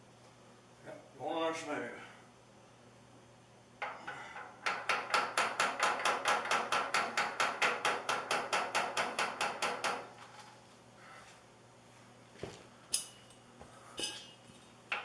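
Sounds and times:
hammer tapping on metal pipe: 0:03.8 - 0:10.1.

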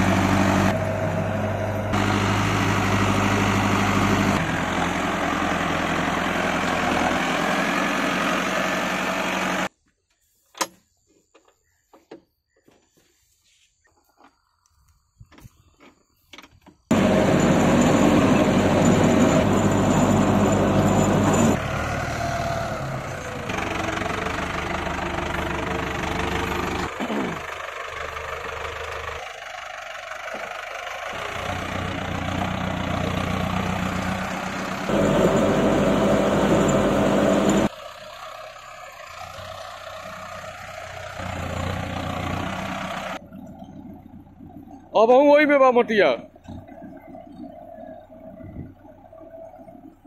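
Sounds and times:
tractor engine running: 0:00.0 - 0:09.7, 0:15.3 - 0:50.0.

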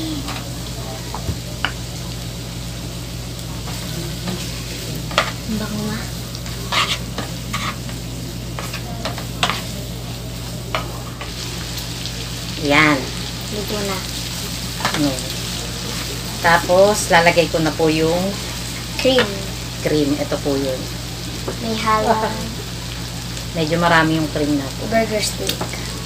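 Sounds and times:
bacon sizzling in a frying pan: 0:00.0 - 0:26.0
wooden spatula scraping pan: 0:06.6 - 0:08.0.

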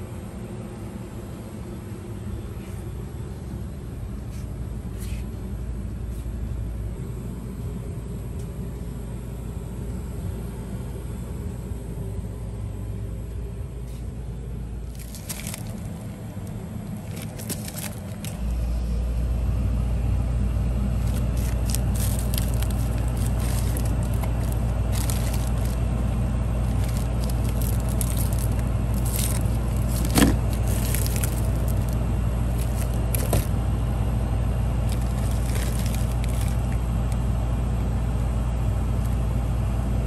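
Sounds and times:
low rumble and hum: 0:00.0 - 0:40.0
plastic bags crinkling: 0:14.8 - 0:18.5, 0:21.0 - 0:33.6, 0:34.8 - 0:36.8.

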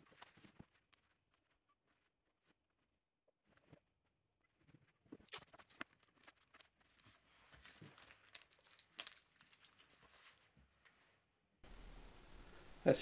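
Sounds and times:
masking tape crackling off roll: 0:04.6 - 0:12.5.

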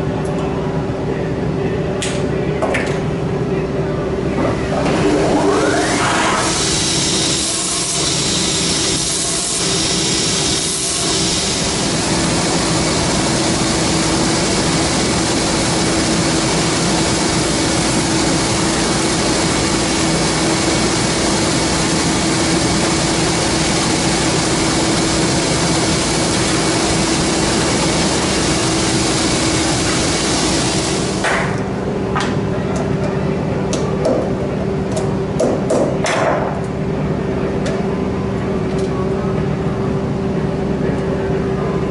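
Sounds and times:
motor hum: 0:04.2 - 0:33.2.

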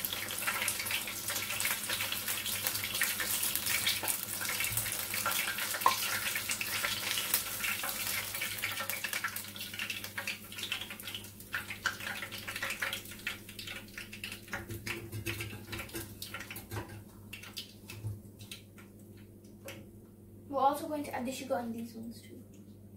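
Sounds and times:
deep-frying sizzle in oil: 0:00.0 - 0:19.9.

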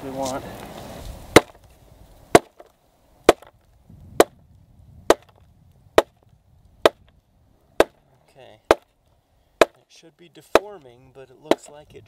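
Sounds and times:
stone hammer striking iron: 0:03.3 - 0:03.5, 0:05.1 - 0:05.4, 0:06.0 - 0:06.2, 0:09.6 - 0:09.8, 0:11.5 - 0:11.7.

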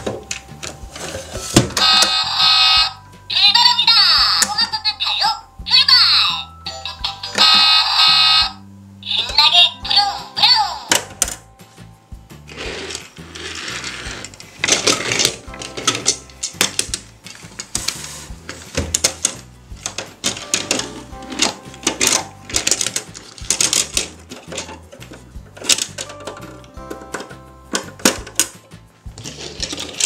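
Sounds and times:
background music: 0:00.0 - 0:30.0
plastic toy vehicles clacking: 0:12.9 - 0:28.6, 0:29.2 - 0:30.0.

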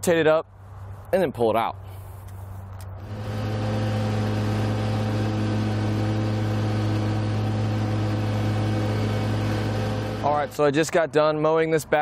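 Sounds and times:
riding mower engine humming: 0:03.0 - 0:10.9.

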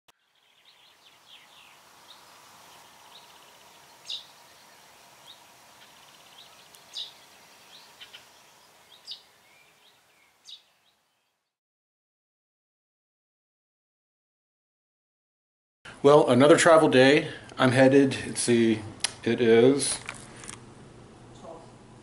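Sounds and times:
soft outdoor ambience: 0:00.2 - 0:11.5, 0:15.9 - 0:22.0
birds chirping: 0:00.2 - 0:11.6.

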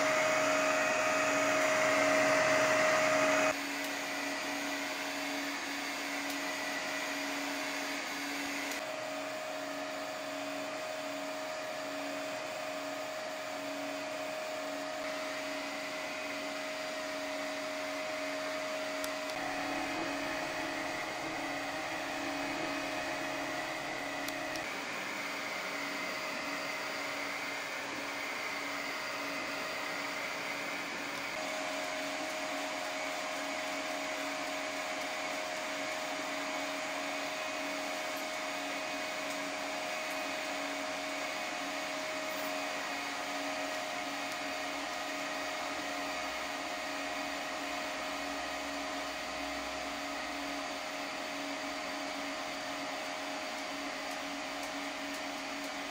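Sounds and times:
stepper motors whining: 0:00.0 - 0:09.0, 0:12.8 - 0:46.6
cooling fans whirring: 0:00.0 - 0:55.9.

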